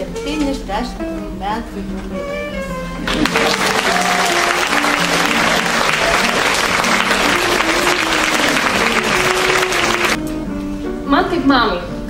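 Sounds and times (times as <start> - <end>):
audience applauding: 3.0 - 10.2.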